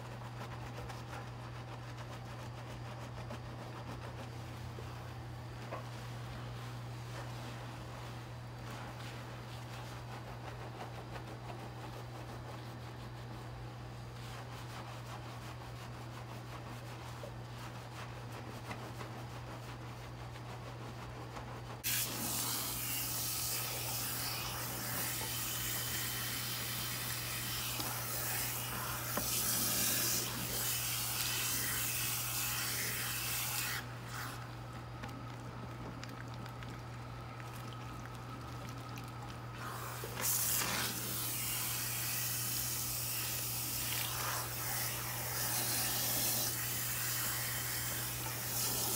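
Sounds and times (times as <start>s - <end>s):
hands scrubbing lathered hair: 0.0s - 48.9s
low steady hum: 0.0s - 48.9s
hand sprayer hissing: 21.8s - 34.5s, 39.6s - 48.9s
water splashing into basin: 35.0s - 40.2s.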